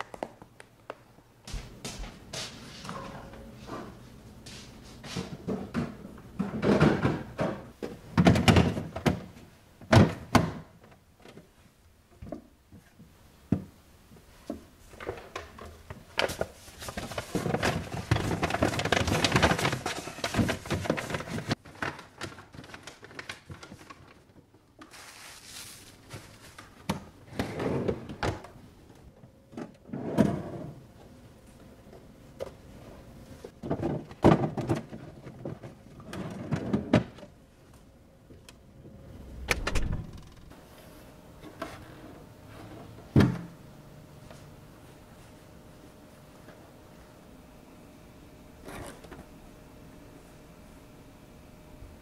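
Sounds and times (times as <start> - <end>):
paper bags rustling: 16.1 - 26.9
plastic drawers sliding: 26.8 - 28.6, 33.6 - 37.3.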